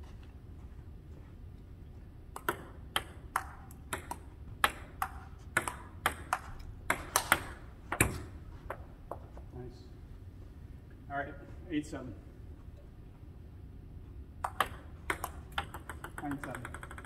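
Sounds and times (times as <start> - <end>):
low room hum: 0.0 - 17.0
table tennis ball clicking: 2.4 - 8.0, 14.4 - 17.0.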